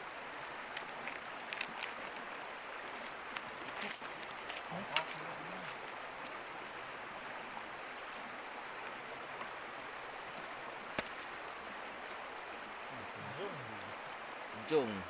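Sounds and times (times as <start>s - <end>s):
stream water flowing: 0.0s - 15.0s.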